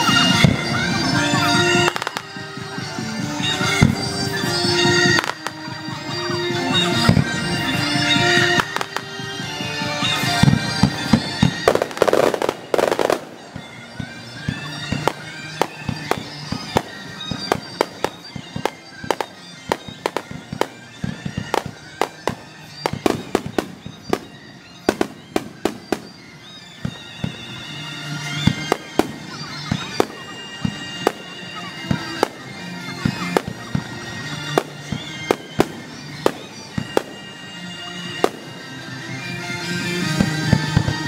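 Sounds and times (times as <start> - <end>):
fireworks bursting with bangs: 0.0 - 41.0
crackling firework burst: 10.0 - 27.4.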